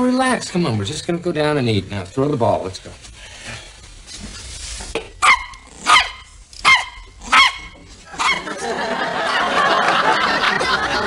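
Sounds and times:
dog barking: 0:05.2 - 0:08.5
studio audience laughing: 0:08.1 - 0:11.0.

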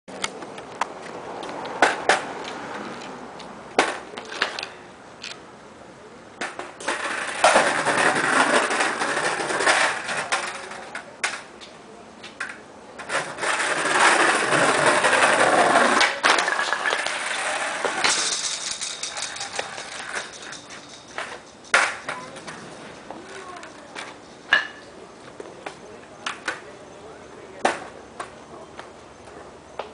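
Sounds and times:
skateboard wheels rolling on concrete: 0:00.1 - 0:29.9
skateboard clacks: 0:06.4 - 0:26.7.

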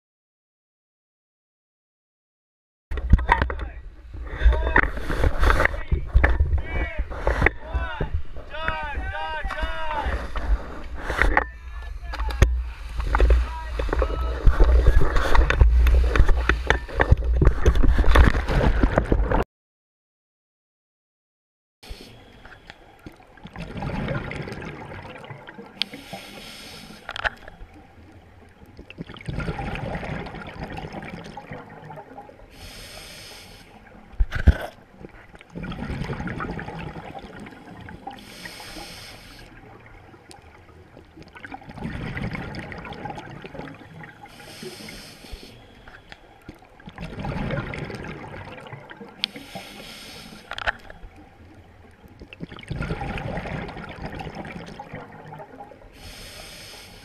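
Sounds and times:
scuba diver breathing underwater: 0:12.5 - 0:18.2, 0:21.8 - 0:22.9, 0:25.8 - 0:27.4, 0:32.5 - 0:33.9, 0:38.0 - 0:39.7, 0:43.6 - 0:46.4, 0:49.2 - 0:51.1, 0:55.9 - 0:57.0.

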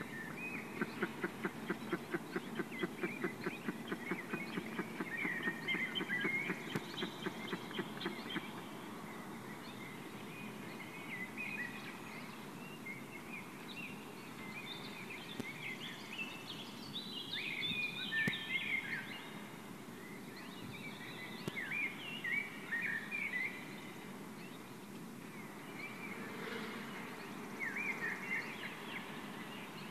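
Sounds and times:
eagle chick chirping: 0:00.8 - 0:08.6.

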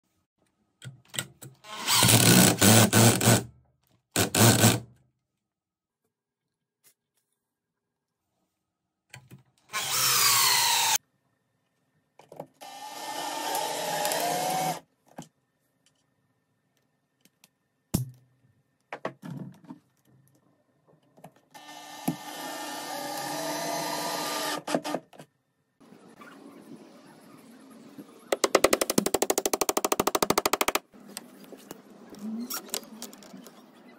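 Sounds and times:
power drill driving screws into wood: 0:01.7 - 0:03.5, 0:04.2 - 0:04.8, 0:09.7 - 0:11.0, 0:12.6 - 0:14.8, 0:21.6 - 0:25.0.

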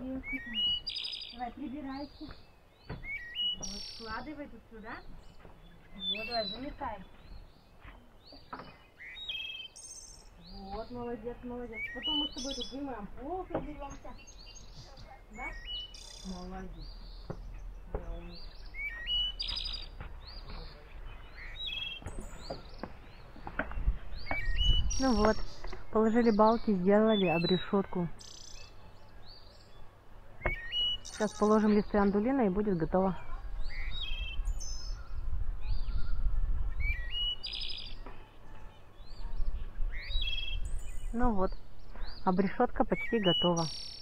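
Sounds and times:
songbirds chirping and singing: 0:00.0 - 0:44.0.

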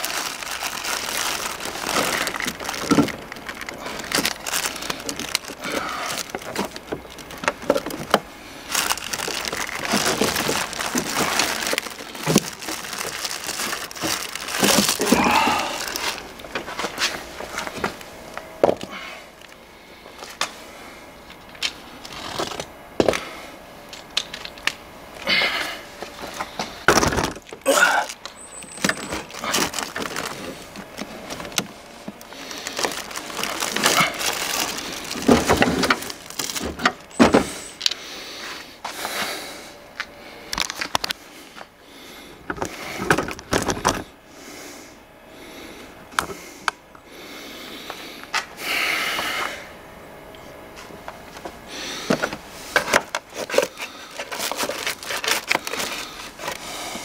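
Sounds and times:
rustling: 0:00.0 - 0:18.1, 0:28.1 - 0:38.7, 0:52.0 - 0:57.0.

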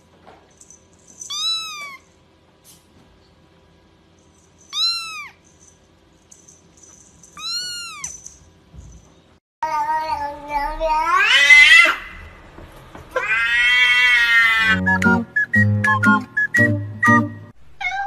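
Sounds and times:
kitten mewing: 0:01.3 - 0:02.0, 0:04.7 - 0:05.4, 0:07.4 - 0:08.1.

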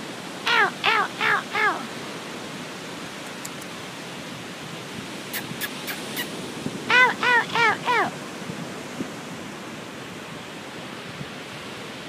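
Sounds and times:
surf hiss: 0:00.0 - 0:12.0
gull calling: 0:00.5 - 0:01.9, 0:05.3 - 0:08.2.

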